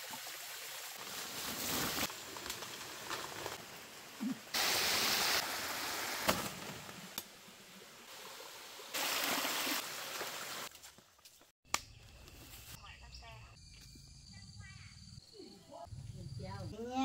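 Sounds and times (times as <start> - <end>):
forest stream rushing: 0.0 - 10.7.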